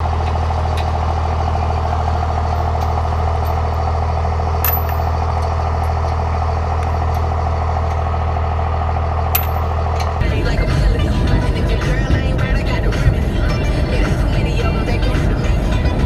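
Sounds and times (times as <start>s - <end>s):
vehicle engine idling: 0.0s - 16.0s.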